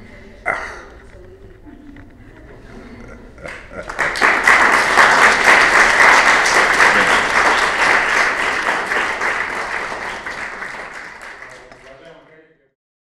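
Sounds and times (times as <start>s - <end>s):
audience applauding: 3.5s - 12.2s.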